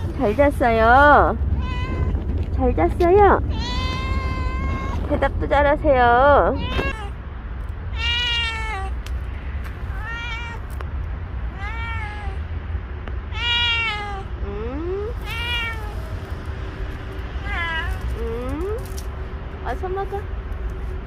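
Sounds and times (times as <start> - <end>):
cat meowing: 1.6 - 2.2, 3.4 - 5.1, 6.5 - 7.2, 7.9 - 9.0, 9.9 - 10.7, 11.5 - 12.5, 13.3 - 16.3, 17.4 - 18.1.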